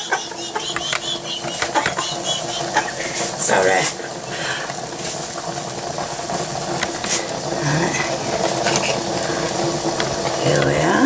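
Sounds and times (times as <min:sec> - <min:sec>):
kitchen appliance humming: 0:00.0 - 0:11.0
metal spoon scraping a dish: 0:08.4 - 0:09.0.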